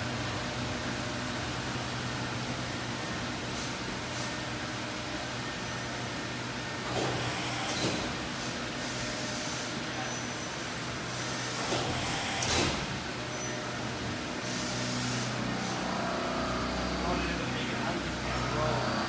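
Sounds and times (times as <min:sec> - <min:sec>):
machine hum: 0:00.0 - 0:19.0
short hissing bursts: 0:14.4 - 0:15.8.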